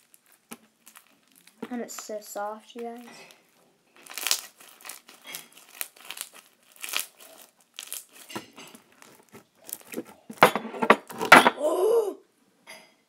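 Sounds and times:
slime crackling and popping: 0:00.0 - 0:03.4, 0:04.0 - 0:10.3.

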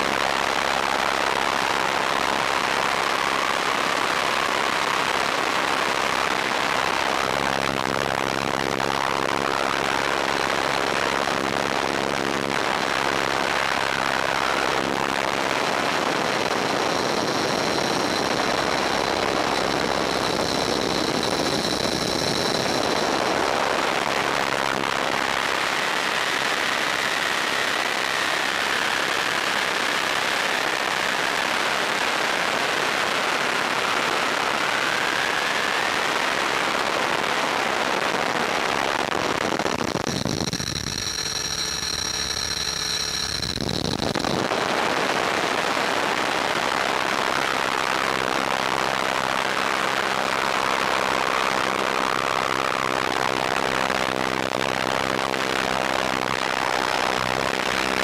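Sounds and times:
faint motor whine: 0:39.2 - 0:52.0
steady high tones: 0:39.9 - 0:44.3.

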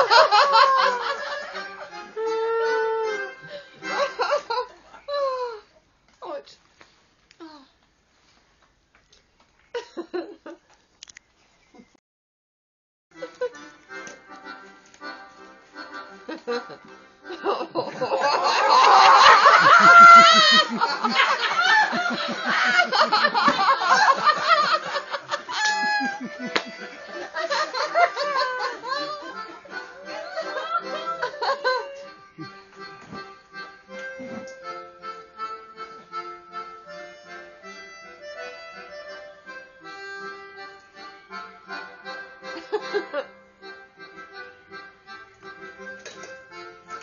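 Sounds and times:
music of held chords: 0:00.0 - 0:04.7, 0:13.2 - 0:47.0
party guests laughing: 0:00.0 - 0:05.4, 0:15.8 - 0:33.1, 0:41.7 - 0:43.4.

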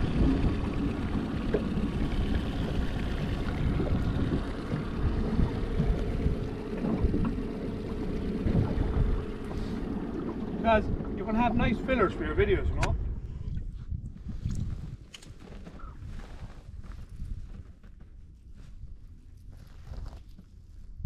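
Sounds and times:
motor hum: 0:00.0 - 0:13.8
choppy water: 0:00.0 - 0:14.7
wind buffeting microphone: 0:00.0 - 0:18.0.

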